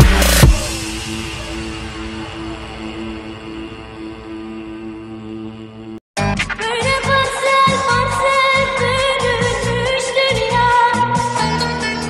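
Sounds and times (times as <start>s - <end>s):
wavering melody over drum beat: 0.0s - 2.7s.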